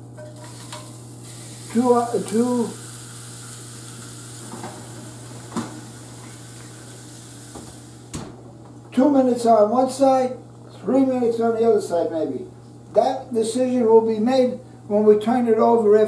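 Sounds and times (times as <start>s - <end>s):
steak sizzling in a pan: 0.2s - 8.2s.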